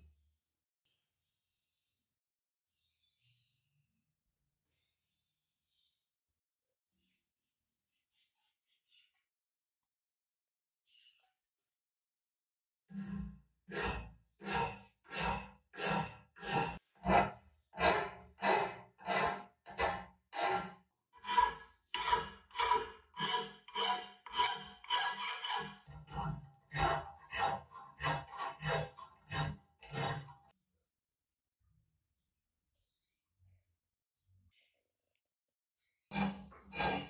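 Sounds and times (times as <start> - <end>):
rasping abrasive strokes on metal: 12.9 - 30.5, 36.1 - 37.0.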